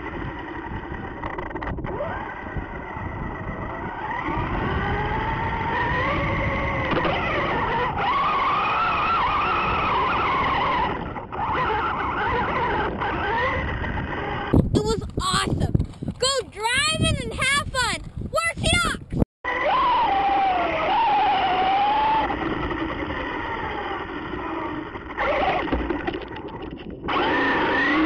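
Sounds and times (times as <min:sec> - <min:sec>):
electric motor whining: 0:00.0 - 0:15.2, 0:19.5 - 0:26.0, 0:27.1 - 0:28.0.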